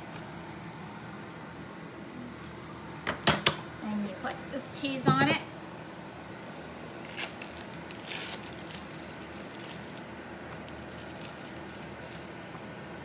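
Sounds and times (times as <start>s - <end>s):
faint room hum: 0.0s - 13.0s
plastic wrapper crinkling: 6.8s - 12.5s.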